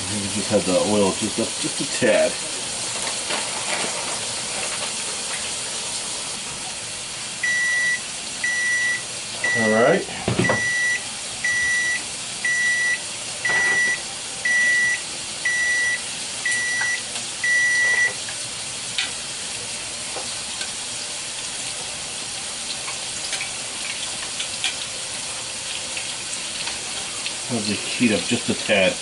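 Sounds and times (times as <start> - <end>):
fish sizzling in hot oil: 0.0 - 29.0
electronic beeper: 10.4 - 18.2.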